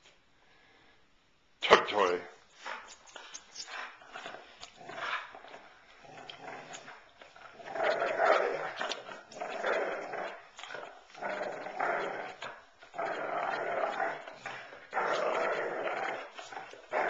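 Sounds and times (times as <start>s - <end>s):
dog growling in play: 3.7s - 17.0s.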